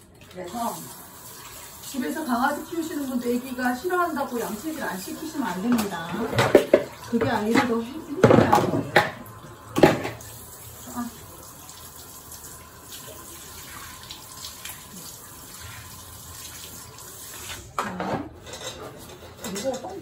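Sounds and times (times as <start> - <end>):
shower head spraying water: 0.4 - 9.2.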